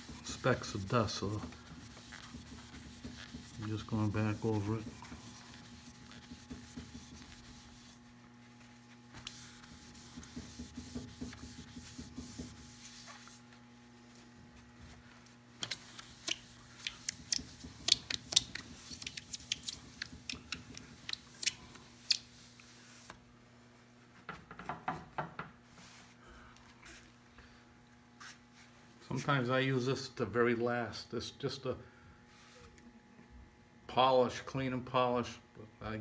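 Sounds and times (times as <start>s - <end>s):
cloth rubbing on wood: 0.0s - 13.6s
low steady hum: 0.0s - 24.2s.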